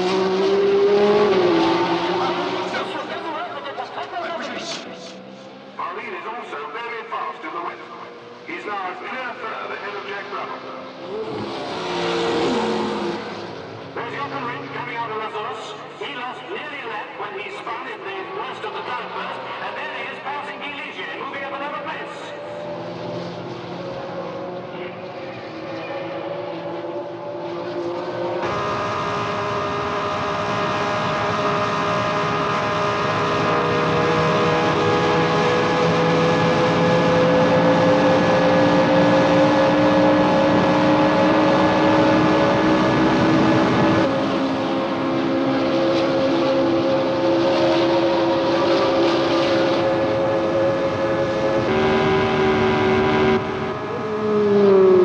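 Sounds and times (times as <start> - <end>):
racing car engines: 0.0 - 55.0.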